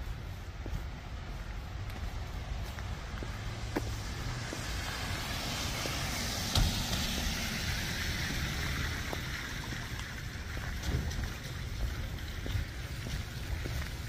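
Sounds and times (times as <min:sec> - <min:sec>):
car passing on wet street: 0:00.0 - 0:14.0
thump: 0:06.5 - 0:07.0.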